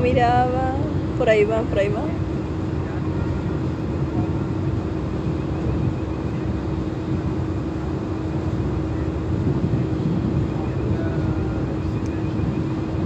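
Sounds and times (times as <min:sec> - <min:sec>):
low rumble: 0:00.0 - 0:13.0
ship machinery hum: 0:00.0 - 0:13.0
wind noise on microphone: 0:00.0 - 0:13.0.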